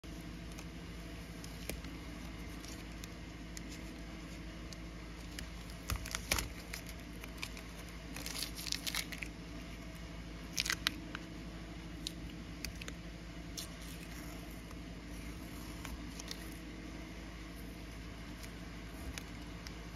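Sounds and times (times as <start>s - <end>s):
steady low hum: 0.0s - 19.9s
tape peeling and tearing: 4.7s - 9.3s.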